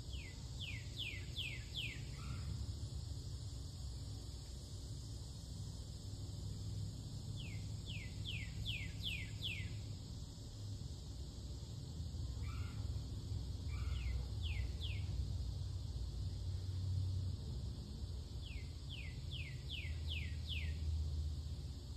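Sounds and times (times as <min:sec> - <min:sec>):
songbird whistling: 0:07.4 - 0:09.8.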